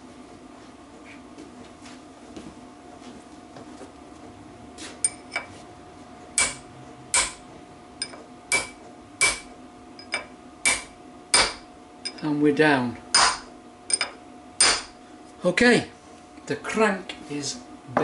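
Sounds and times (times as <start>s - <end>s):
hammer tapping steel punch: 6.4s - 7.4s, 8.0s - 12.3s, 13.1s - 14.9s.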